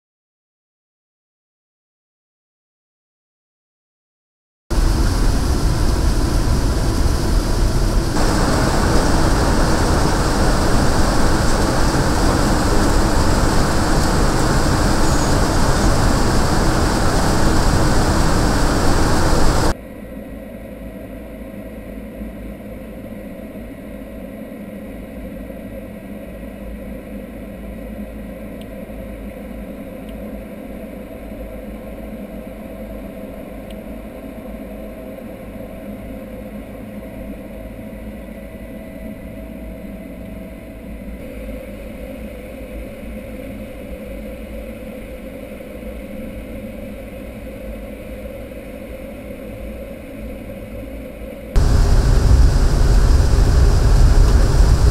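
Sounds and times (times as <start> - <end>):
jet engines droning: 4.7 - 19.8, 51.6 - 54.9
steady hum tones: 4.7 - 19.8, 51.6 - 54.9.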